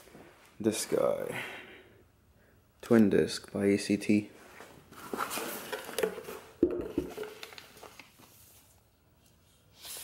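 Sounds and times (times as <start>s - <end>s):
paper rustling: 4.9s - 8.8s.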